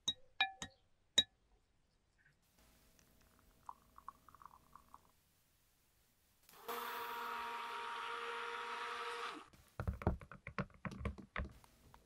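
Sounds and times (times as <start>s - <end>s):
electric mixer whirring: 6.6s - 9.5s.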